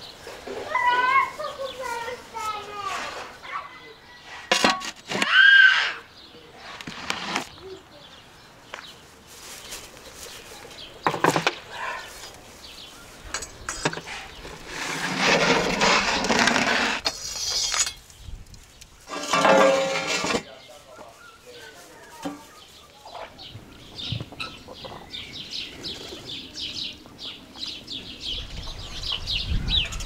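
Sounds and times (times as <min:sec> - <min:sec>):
metal pan scraping on brick: 0:04.3 - 0:05.3, 0:06.7 - 0:07.5, 0:13.3 - 0:18.0, 0:19.1 - 0:20.5.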